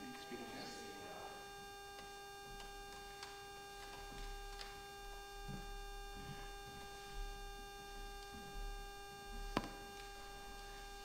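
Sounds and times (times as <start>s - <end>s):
steady electrical hum: 0.0s - 11.0s.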